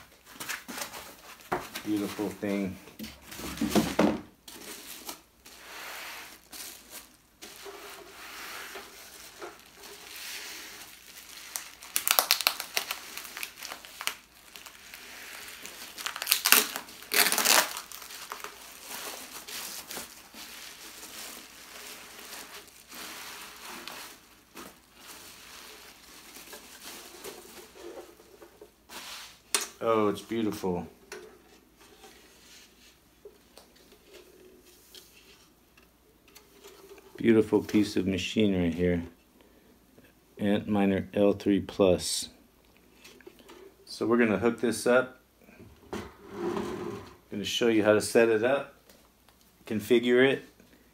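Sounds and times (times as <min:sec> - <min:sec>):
bubble wrap crinkling: 0:04.4 - 0:30.8.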